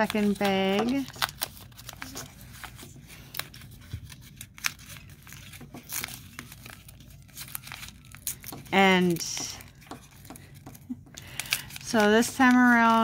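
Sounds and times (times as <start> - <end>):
paper bag crinkling and tearing: 0.0 - 9.7.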